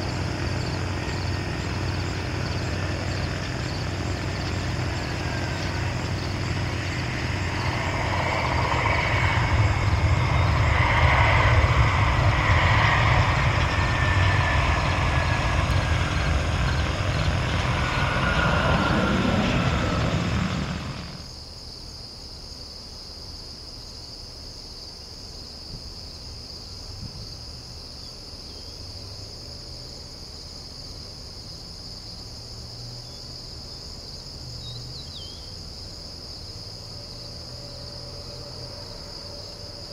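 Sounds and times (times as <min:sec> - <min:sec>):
jet engines roaring with whine: 0:00.0 - 0:21.3, 0:37.0 - 0:39.9
crickets chirping: 0:00.0 - 0:39.9.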